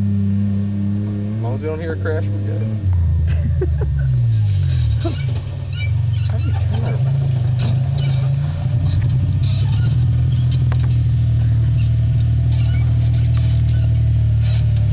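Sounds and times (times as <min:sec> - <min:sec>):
truck engine running: 0:00.0 - 0:14.9.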